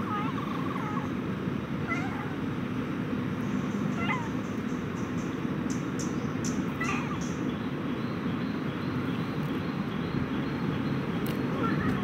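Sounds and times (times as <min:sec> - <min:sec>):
cat meowing: 0:01.8 - 0:02.4, 0:04.0 - 0:04.4, 0:06.8 - 0:07.2.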